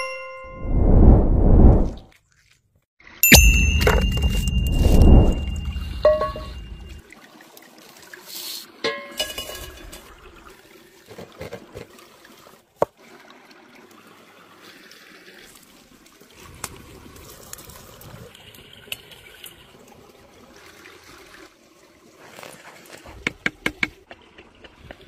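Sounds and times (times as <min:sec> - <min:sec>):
stream trickling: 0:02.1 - 0:25.0
metal clink: 0:03.2 - 0:07.0.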